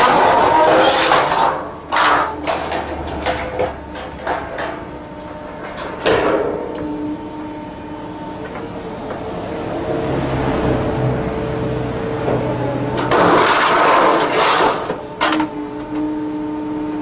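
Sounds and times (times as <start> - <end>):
steel guardrail scraping and creaking: 0.0 - 7.0, 12.3 - 15.5
excavator humming: 0.0 - 17.0.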